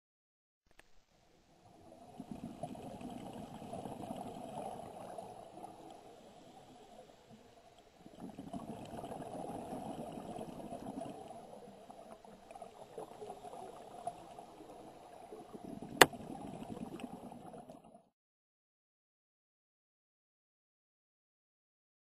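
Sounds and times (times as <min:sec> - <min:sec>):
underwater exhaled bubbles gurgling: 0:01.6 - 0:18.0.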